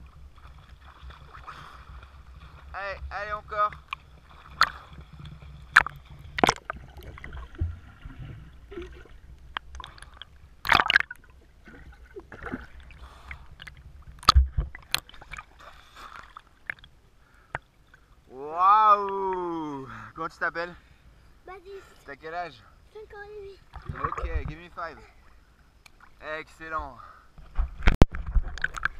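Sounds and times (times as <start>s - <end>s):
arms splashing water: 0.0s - 9.2s, 9.8s - 16.9s
water gurgling and sloshing: 0.0s - 18.4s, 20.8s - 28.9s.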